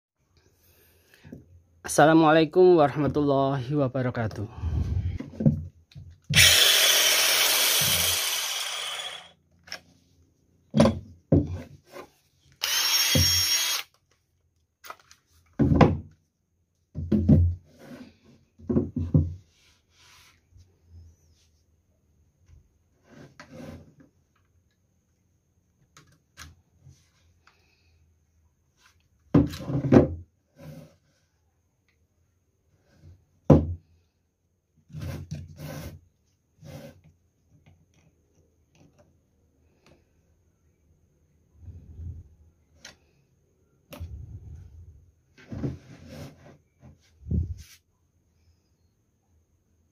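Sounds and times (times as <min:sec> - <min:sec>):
angle grinder spinning down: 0:06.3 - 0:09.4, 0:12.6 - 0:13.9
impact driver motor whine: 0:06.3 - 0:09.4, 0:12.6 - 0:13.9.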